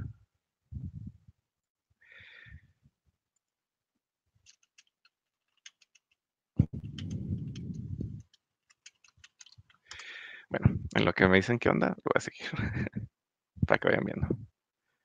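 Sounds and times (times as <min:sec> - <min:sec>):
computer mouse clicks: 0:04.4 - 0:10.2
keyboard clicks: 0:04.4 - 0:10.2
low rumbling noise: 0:06.6 - 0:08.2.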